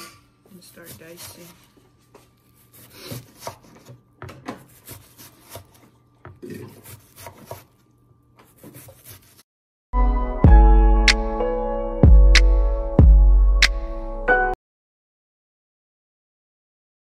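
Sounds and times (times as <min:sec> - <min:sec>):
knife chopping on wooden board: 0:02.7 - 0:07.8, 0:08.4 - 0:09.4
loud background music: 0:10.0 - 0:14.3.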